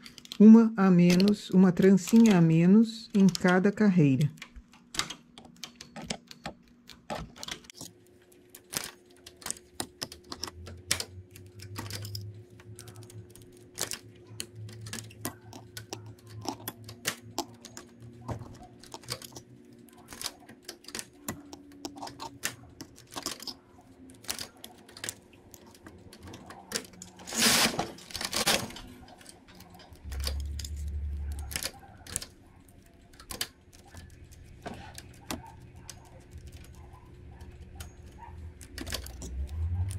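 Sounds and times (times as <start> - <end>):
metal tools clicking on needles: 0.0 - 7.9, 8.8 - 27.2, 29.0 - 39.9
knitting machine carriage rasp: 9.3 - 39.9.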